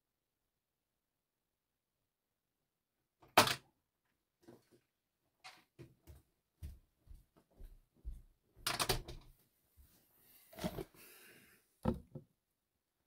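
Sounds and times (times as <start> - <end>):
footsteps: 6.0 - 8.7.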